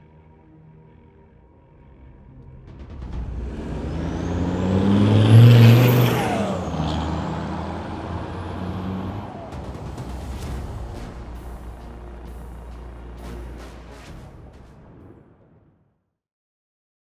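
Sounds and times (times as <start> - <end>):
diesel engine driving past: 2.7 - 14.2.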